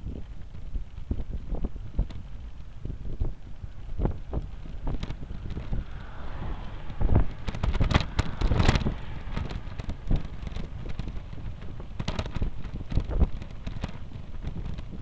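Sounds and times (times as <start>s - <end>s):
low rumble: 0.0s - 15.0s
wind buffeting microphone: 0.0s - 15.0s
camera rattling knocks: 7.4s - 15.0s.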